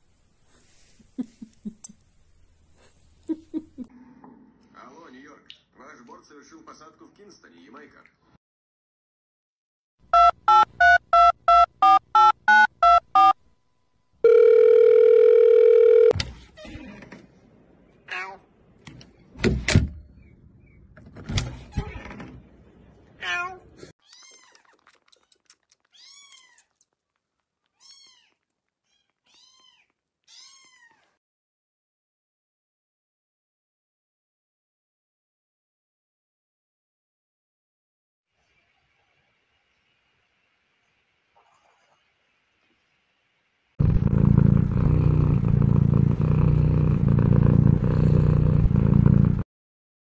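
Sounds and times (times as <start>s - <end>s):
cat purring: 43.8s - 49.4s.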